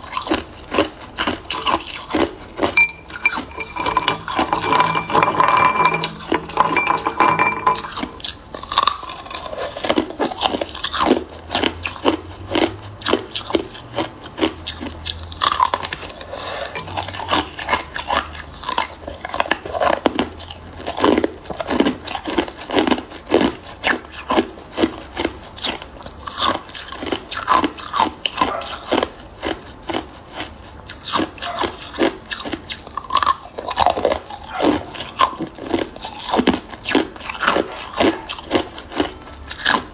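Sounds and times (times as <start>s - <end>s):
ice cubes clinking in ceramic bowl: 2.6s - 10.6s.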